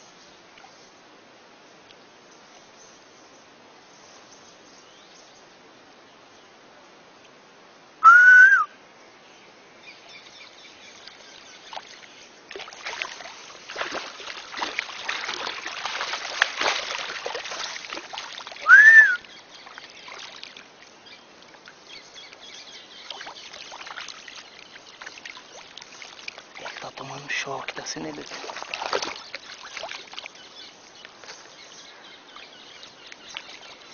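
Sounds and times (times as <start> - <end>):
loud whistled calls: 8.0 - 8.7, 18.6 - 19.4
shallow water splashing: 10.8 - 33.9.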